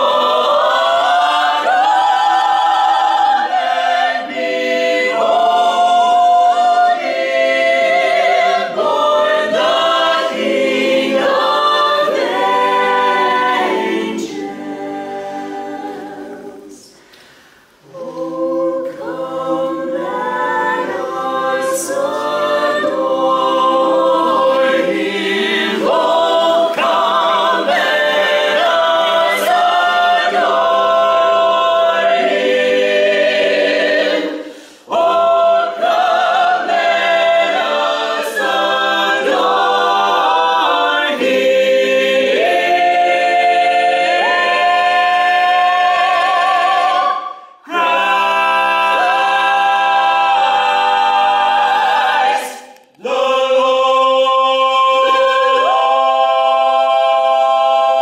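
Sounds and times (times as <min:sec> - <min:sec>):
a cappella choir singing: 0:00.0 - 0:58.0.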